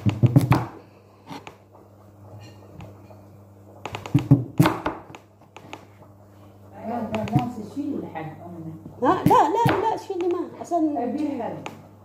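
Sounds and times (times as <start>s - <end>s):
knocking on cutting board: 0.0s - 0.8s, 3.8s - 5.8s, 7.1s - 7.6s.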